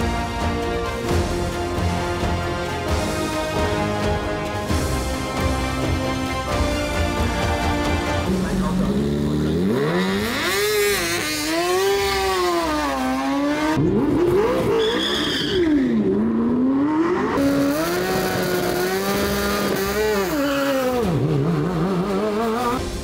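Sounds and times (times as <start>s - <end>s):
race car engines revving: 1.8s - 22.9s
short high squeal: 14.7s - 15.9s.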